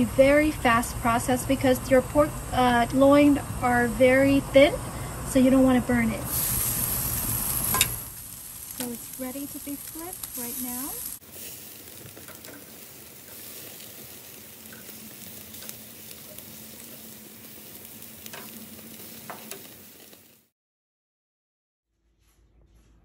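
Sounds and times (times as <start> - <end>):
meat sizzling on a grill: 5.4 - 20.5.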